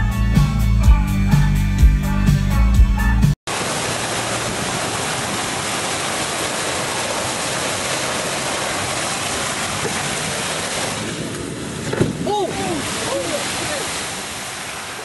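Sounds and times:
rush of spraying water: 3.5 - 15.0.

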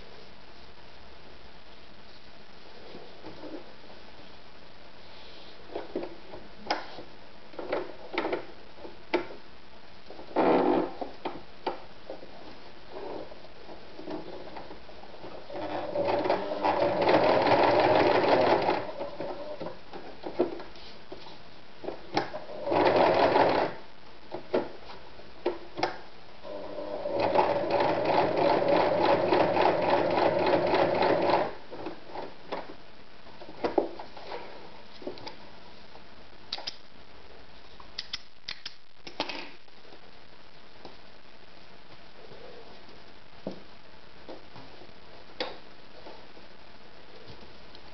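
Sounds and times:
sewing machine running: 15.5 - 19.6, 22.5 - 23.8, 26.5 - 31.6.

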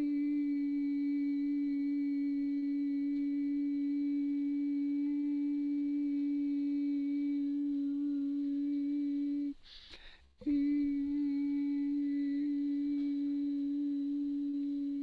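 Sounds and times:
person toning a held vowel: 0.0 - 15.0
quick breath: 9.6 - 10.4.

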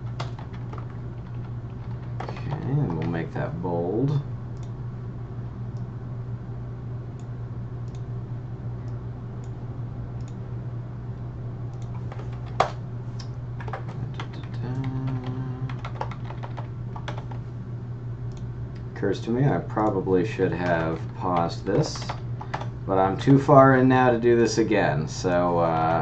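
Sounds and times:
steady low hum: 0.0 - 26.0
computer keyboard keys clicking: 0.1 - 3.2, 11.8 - 17.4, 19.8 - 22.7.

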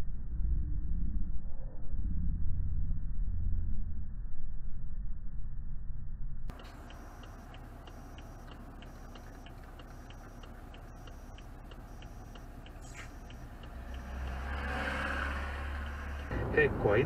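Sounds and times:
car engine idling: 6.5 - 17.0
turn signal ticking: 6.5 - 17.0.

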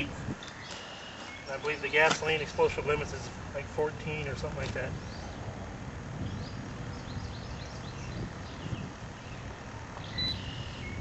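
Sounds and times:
small birds chirping: 0.0 - 3.2, 4.4 - 11.0
low steady rumble: 1.5 - 11.0.

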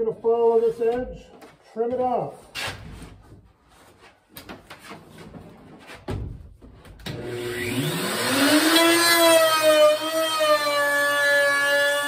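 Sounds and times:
wood router motor whine: 7.1 - 12.0.

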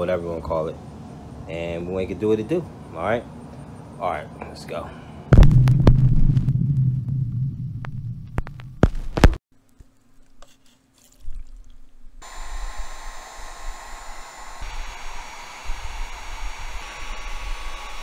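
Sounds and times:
heat gun blowing: 12.2 - 18.0.

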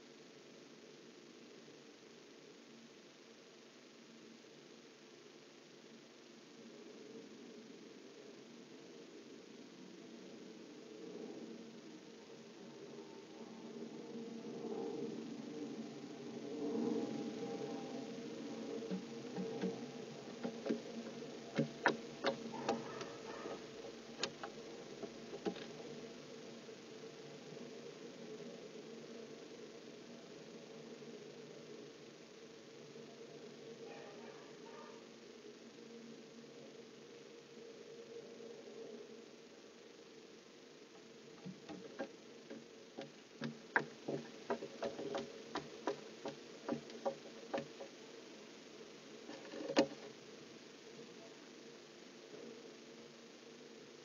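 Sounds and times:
electrical hum: 0.0 - 54.0
clicks and taps on wood: 21.5 - 23.1, 41.4 - 47.9.

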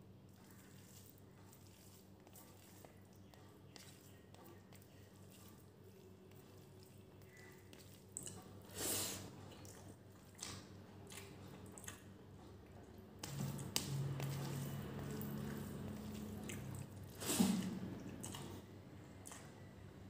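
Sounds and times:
low steady hum: 0.0 - 20.0
fingers squishing wet food: 0.3 - 18.6.

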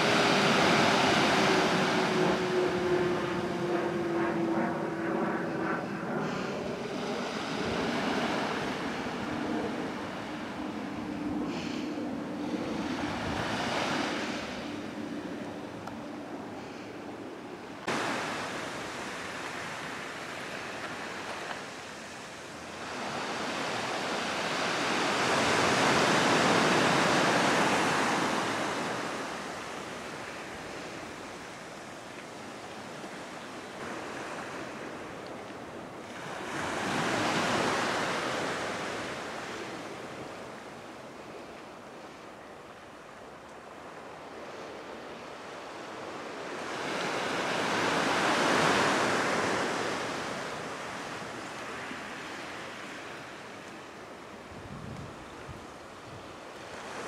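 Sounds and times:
ocean surf washing ashore: 0.0 - 57.0.

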